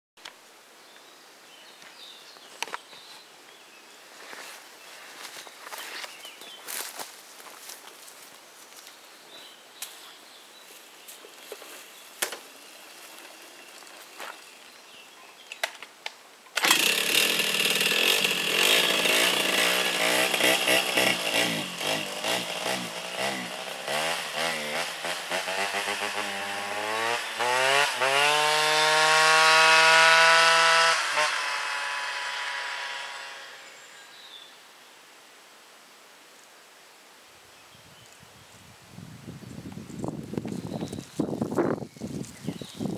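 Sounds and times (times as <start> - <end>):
moped engine passing by: 16.8 - 34.4.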